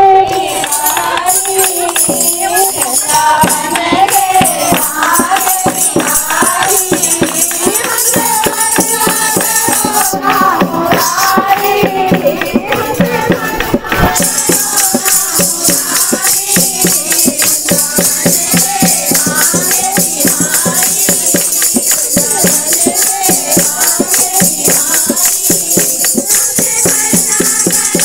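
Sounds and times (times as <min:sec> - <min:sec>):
drum beat: 0:00.0 - 0:28.0
jingling shaker: 0:00.0 - 0:28.0
women singing through microphones: 0:00.0 - 0:28.0
hand clapping: 0:00.2 - 0:28.0.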